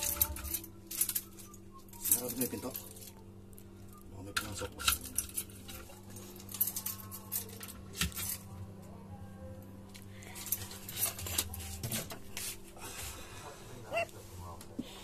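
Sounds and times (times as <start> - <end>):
keys jangling: 0.0 - 3.1, 4.8 - 8.4.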